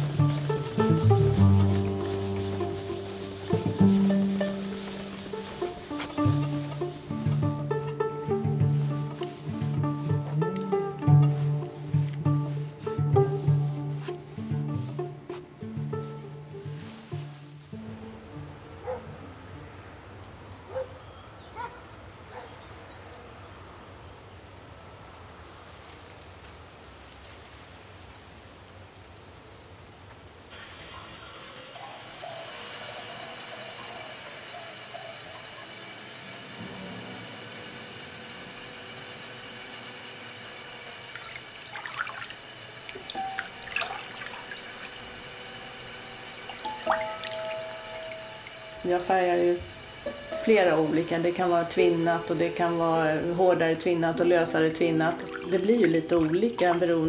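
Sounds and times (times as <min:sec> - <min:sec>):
steady hum: 0:00.0 - 0:20.1, 0:32.8 - 0:57.0
water splashing and dripping: 0:41.2 - 0:45.4, 0:46.4 - 0:48.7, 0:55.1 - 0:56.9.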